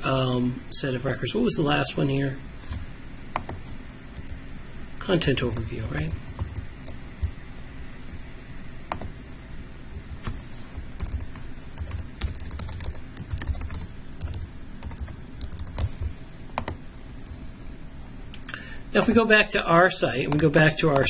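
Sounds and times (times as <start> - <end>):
computer keyboard typing: 5.5 - 7.3, 11.0 - 16.8, 20.3 - 21.0.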